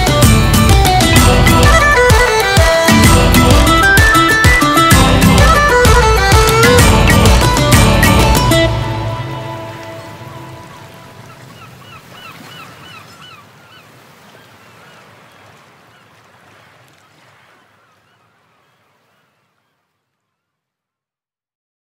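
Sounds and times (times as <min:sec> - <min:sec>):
honking bird calls: 0:00.8 - 0:19.8.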